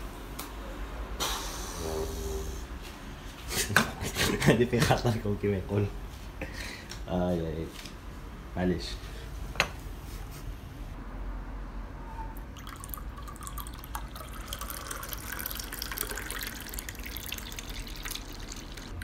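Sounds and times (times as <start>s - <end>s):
water pouring into a glass: 12.4s - 19.0s.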